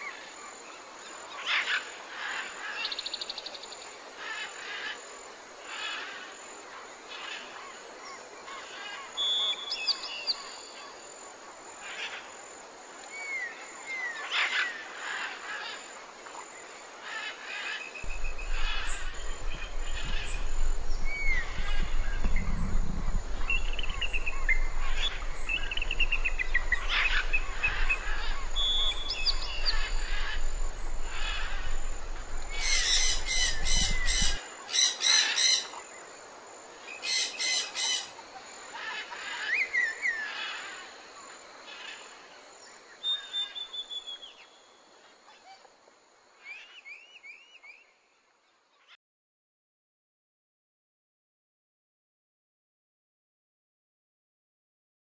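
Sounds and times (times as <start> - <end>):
low rumble: 18.1 - 34.4
birds chirping and whistling: 18.1 - 35.7
harsh bird chatter: 18.1 - 35.8.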